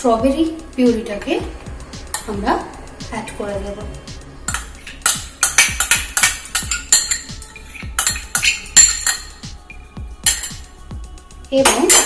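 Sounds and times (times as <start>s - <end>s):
background music: 0.0s - 12.0s
metal spoon clinking on glass bowl: 4.5s - 9.5s, 10.2s - 10.7s.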